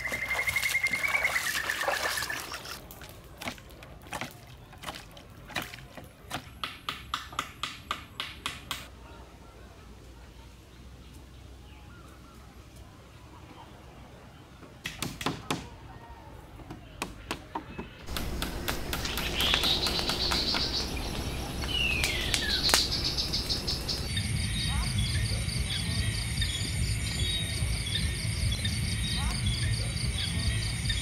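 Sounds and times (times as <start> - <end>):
crickets chirping: 0.0 - 2.8, 18.1 - 31.0
birds calling: 0.0 - 5.2, 17.6 - 31.0
sharp knocks: 17.0 - 21.0.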